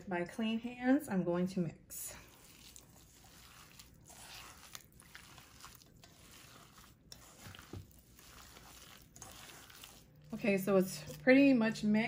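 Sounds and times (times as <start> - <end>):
hands squishing raw meat: 2.2 - 11.2.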